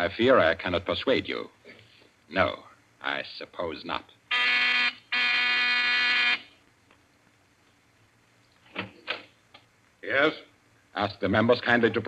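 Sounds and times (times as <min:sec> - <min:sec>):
electric buzzer: 0:04.3 - 0:06.5.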